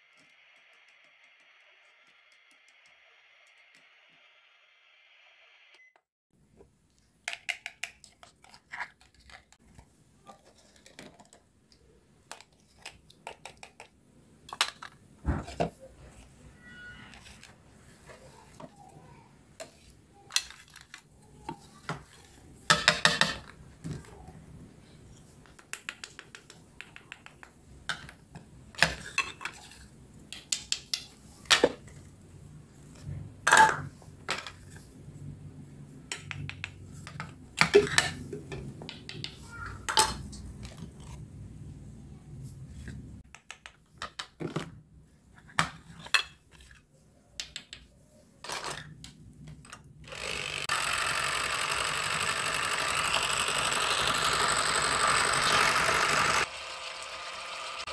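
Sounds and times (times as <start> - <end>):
toy knife cutting play food: 50.1 - 57.9
toy pieces clacking: 50.2 - 57.9.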